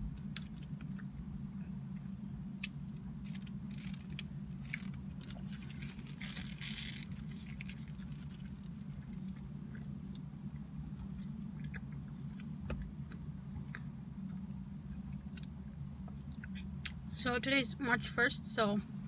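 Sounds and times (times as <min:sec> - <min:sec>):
steady low hum: 0:00.0 - 0:19.0
chewing with crunchy clicks: 0:00.2 - 0:17.0
foil wrapper rustling: 0:03.2 - 0:08.9.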